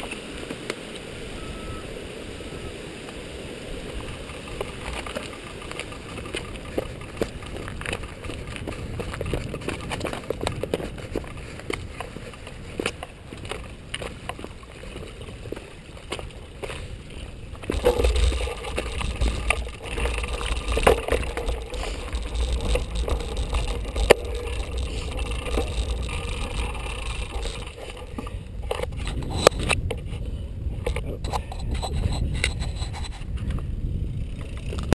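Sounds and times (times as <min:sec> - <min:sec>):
tyres crunching on loose rock: 0:03.9 - 0:30.0
bike rattling and knocking: 0:03.9 - 0:34.9
low rumble: 0:16.5 - 0:33.2.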